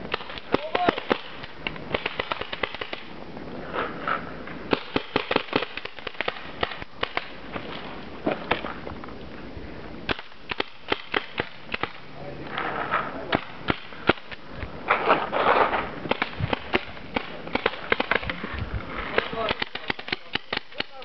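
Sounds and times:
paintball markers firing: 0:00.0 - 0:03.1, 0:04.7 - 0:08.8, 0:10.1 - 0:12.0, 0:13.3 - 0:18.4, 0:19.1 - 0:21.0.

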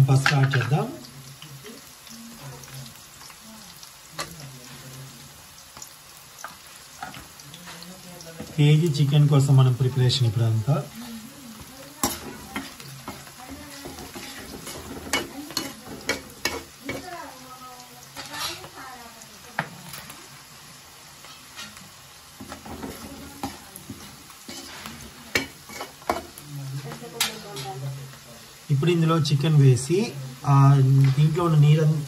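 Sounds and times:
onions sizzling in oil: 0:00.0 - 0:32.0
metal ladle scraping a pan: 0:11.9 - 0:17.1, 0:18.1 - 0:18.8, 0:21.2 - 0:26.4.

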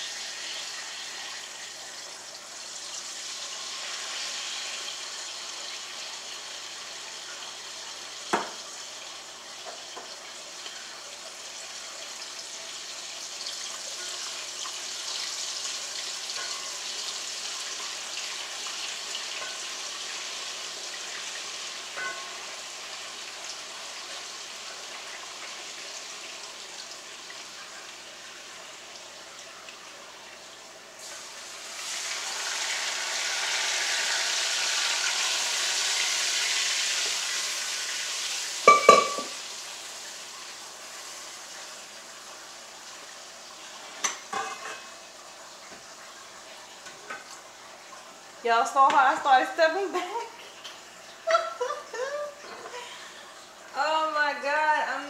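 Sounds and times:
oil sizzling in a pot: 0:00.0 - 0:55.0.

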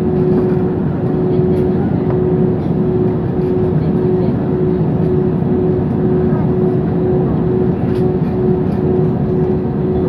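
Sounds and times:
constant droning tone: 0:00.0 - 0:10.0
jet engine rumble in cabin: 0:00.0 - 0:10.0.

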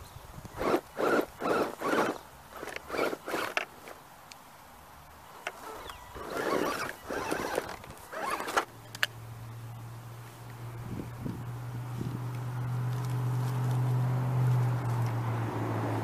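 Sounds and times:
toy car motor whirring: 0:00.5 - 0:04.0, 0:05.5 - 0:08.7
tyres scraping on dirt and rock: 0:00.5 - 0:04.1, 0:05.4 - 0:09.0.

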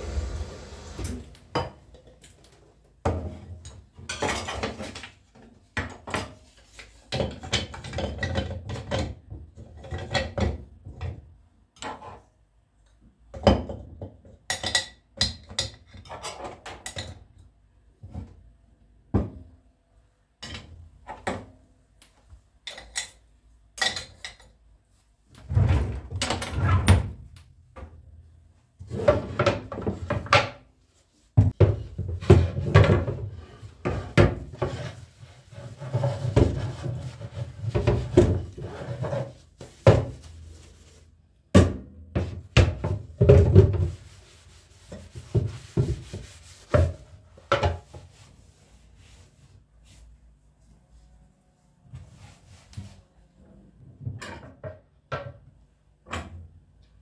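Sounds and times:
rubbing and scraping: 0:32.3 - 0:41.2, 0:43.4 - 0:50.1.

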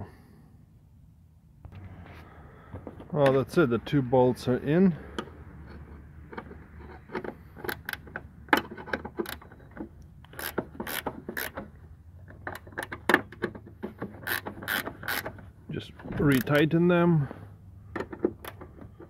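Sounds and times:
ratcheting wrench clicking: 0:05.2 - 0:15.4.

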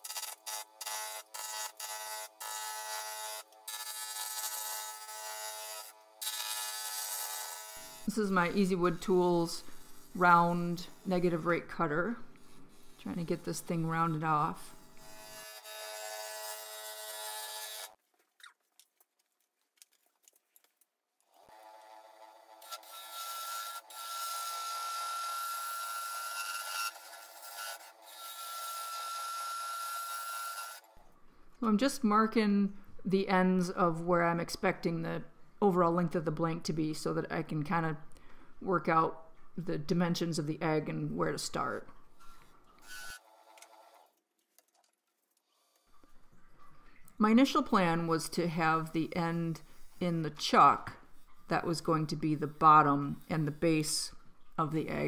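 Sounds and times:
cutter scraping spinning wood: 0:00.0 - 0:18.0.

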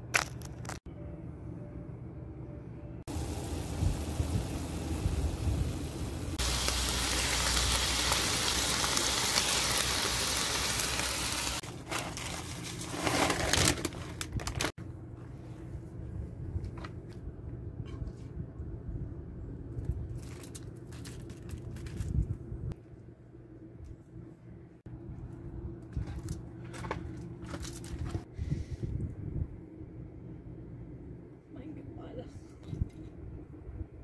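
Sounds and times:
low steady hum: 0:00.6 - 0:12.6, 0:14.4 - 0:34.0
meat sizzling in a skillet: 0:03.1 - 0:11.6
aluminium foil crinkling: 0:06.4 - 0:14.7, 0:20.1 - 0:22.3
tortilla chips crackling: 0:06.4 - 0:14.7, 0:20.1 - 0:22.2.

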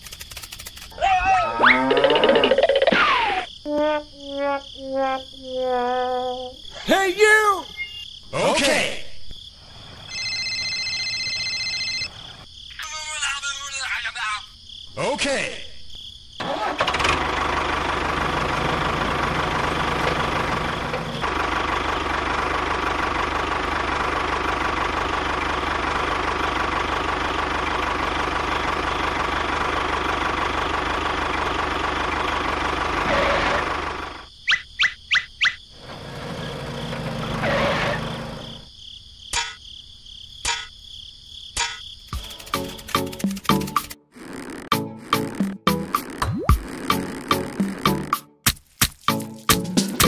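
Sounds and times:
sharp clicks: 0:00.0 - 0:01.0.

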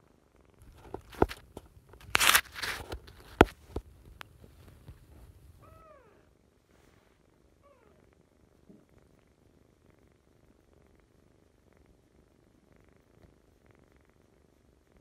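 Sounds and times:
kitten purring: 0:00.0 - 0:15.0
handling rustling and clicks: 0:00.6 - 0:05.4
kitten mewing: 0:05.6 - 0:06.3.

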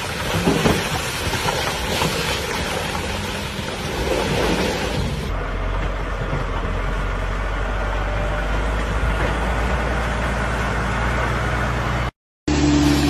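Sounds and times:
rock pouring and sliding: 0:00.0 - 0:05.3
truck engine humming: 0:02.5 - 0:13.0.

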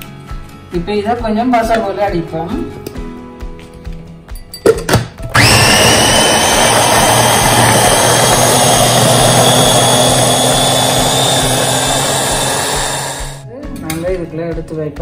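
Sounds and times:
mini chopper motor whining: 0:05.3 - 0:13.4.

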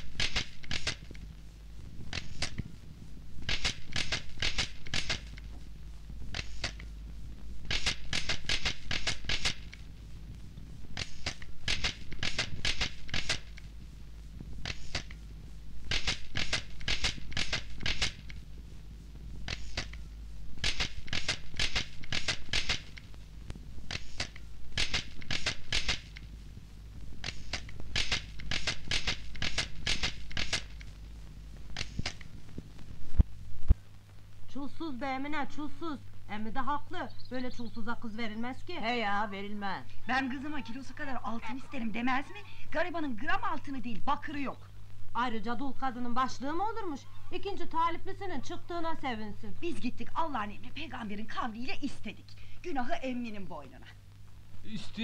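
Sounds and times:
sharp clicks in bursts: 0:00.0 - 0:02.8, 0:03.4 - 0:33.8
low steady hum: 0:00.0 - 0:55.0.

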